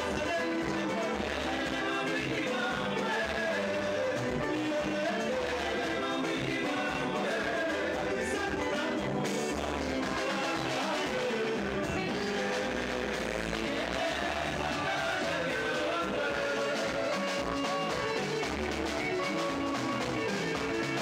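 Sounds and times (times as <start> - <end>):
drum kit: 0.0 - 21.0
electric guitars: 0.0 - 21.0
men singing: 0.0 - 21.0.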